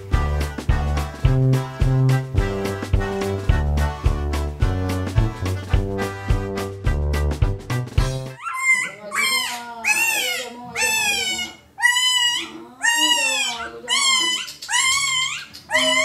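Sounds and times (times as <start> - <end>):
puppy yelping and whining: 8.4 - 16.0.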